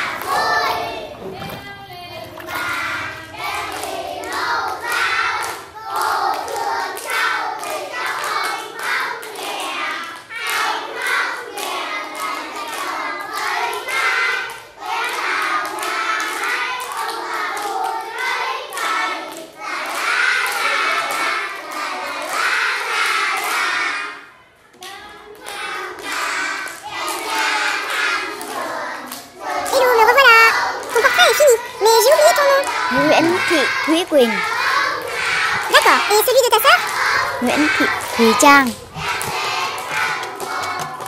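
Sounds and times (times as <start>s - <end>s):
children singing together: 0.0s - 41.0s
hand claps: 36.6s - 41.0s.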